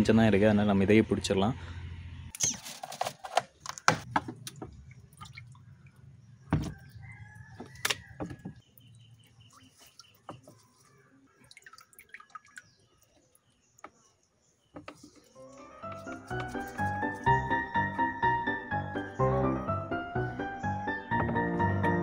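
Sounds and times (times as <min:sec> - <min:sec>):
water splashing and dripping: 0:04.0 - 0:06.9, 0:07.6 - 0:13.5
rooster crowing: 0:06.6 - 0:08.6.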